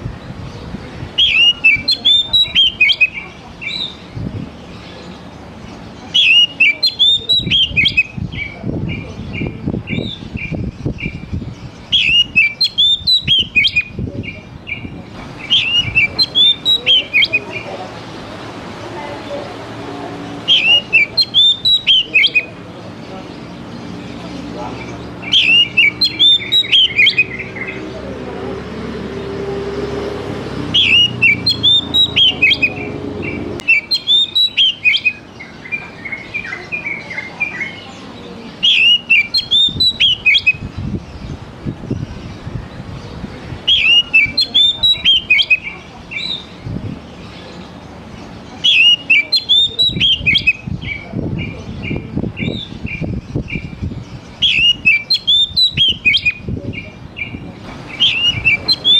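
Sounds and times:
bird singing whistled notes: 1.1 - 4.1, 6.0 - 17.7, 20.4 - 22.6, 25.1 - 27.8, 30.7 - 37.9, 38.6 - 41.4, 43.6 - 46.6, 48.5 - 58.9.

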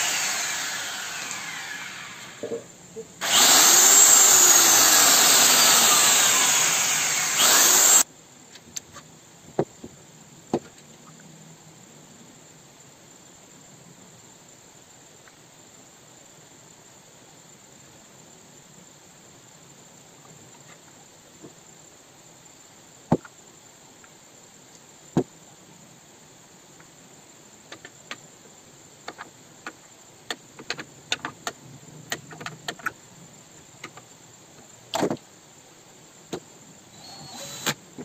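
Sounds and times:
power drill running: 0.0 - 2.5, 3.2 - 8.0, 36.9 - 37.8.

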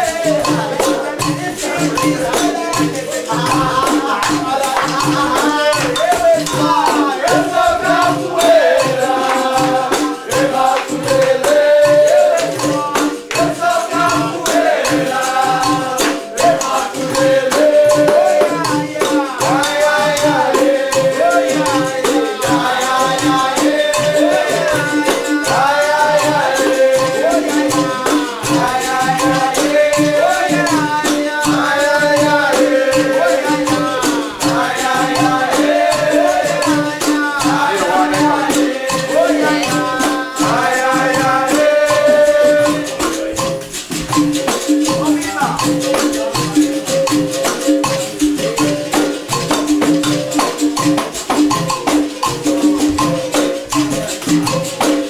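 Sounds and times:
group singing: 0.0 - 55.0
hand drum rhythm: 0.0 - 55.0
berimbaus playing: 13.6 - 54.8.

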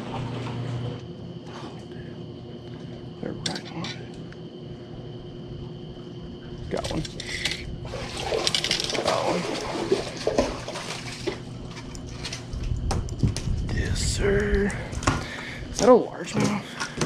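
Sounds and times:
water splashing and sloshing: 0.0 - 1.7, 7.8 - 13.4.

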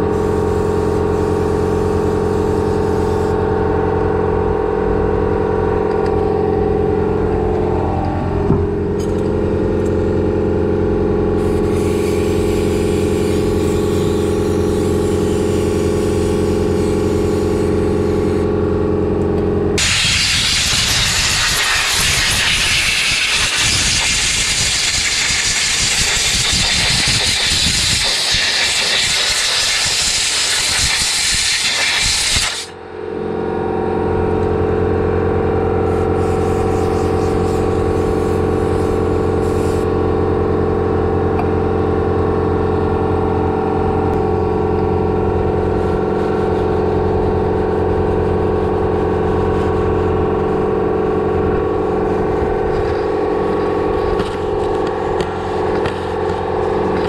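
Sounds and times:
aerosol spray hissing: 11.4 - 18.4, 19.8 - 32.7, 36.2 - 39.8.

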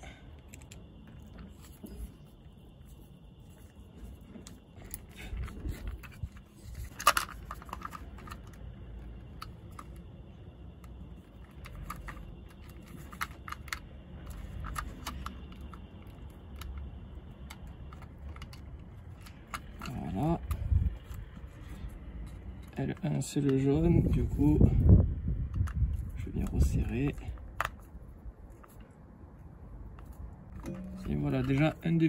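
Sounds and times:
plastic clicks and rattles: 5.4 - 8.6.

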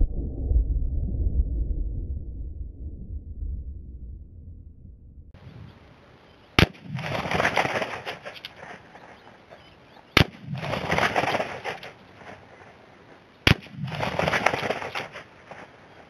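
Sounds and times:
rifle shots: 6.6 - 9.0, 10.1 - 12.4, 13.4 - 15.6.

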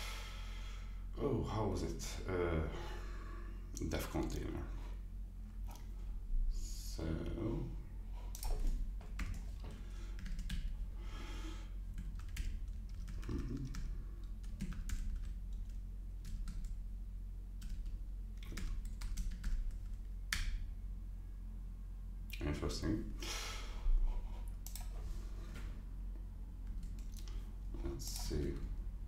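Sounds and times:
low hum: 0.0 - 29.0
keyboard typing: 8.3 - 10.7, 11.9 - 16.8, 17.6 - 20.6.

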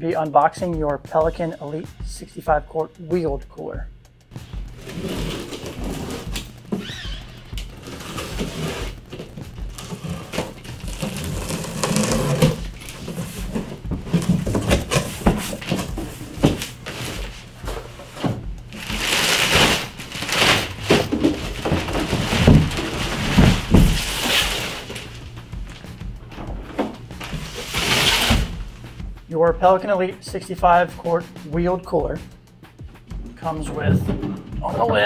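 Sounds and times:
heavy thumps: 4.3 - 29.3, 32.0 - 35.0
cardboard scraping and knocking: 4.6 - 28.9, 33.5 - 35.0
plastic wrapping crinkling: 4.7 - 25.9
packing tape being slit: 4.8 - 17.6, 18.2 - 25.8, 27.2 - 28.6.

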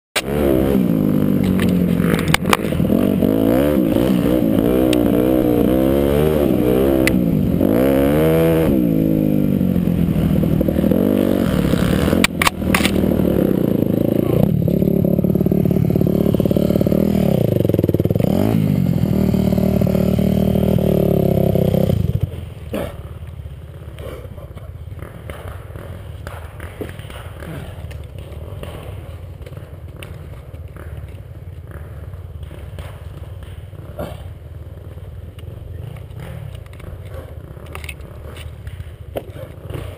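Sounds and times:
dirt bike engine revving: 0.2 - 39.9
bike knocking over bumps: 23.7 - 39.9.

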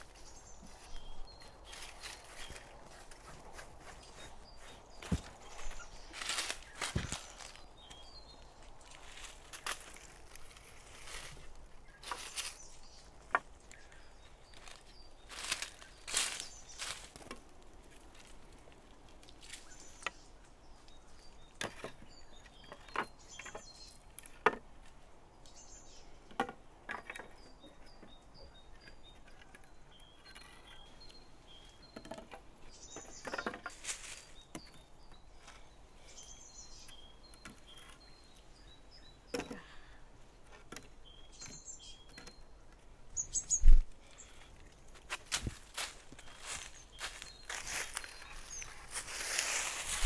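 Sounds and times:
birds chirping faintly: 0.0 - 50.0
wooden poles knocking: 31.9 - 33.9.

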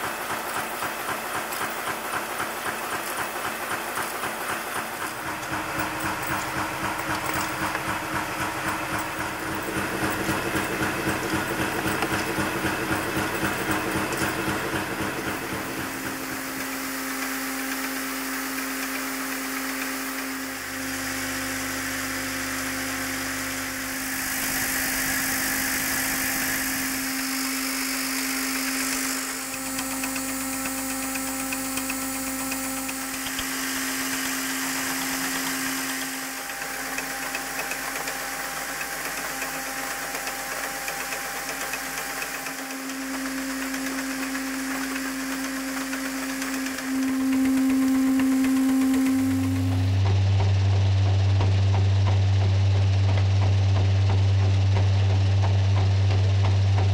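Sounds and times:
nail-making machine clatter: 0.0 - 21.0, 22.3 - 50.1
mechanical hum with held tones: 0.0 - 56.9.

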